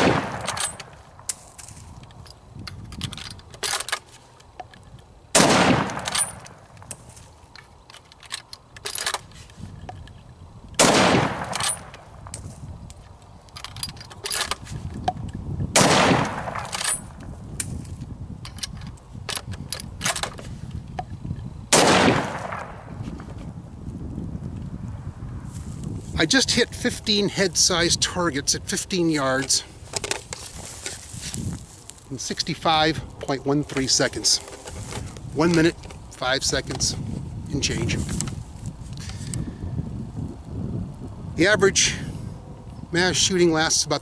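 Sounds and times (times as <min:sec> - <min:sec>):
rifle shots echoing: 0:00.0 - 0:00.9, 0:05.3 - 0:06.6, 0:10.8 - 0:12.0, 0:15.8 - 0:17.1, 0:21.7 - 0:22.9.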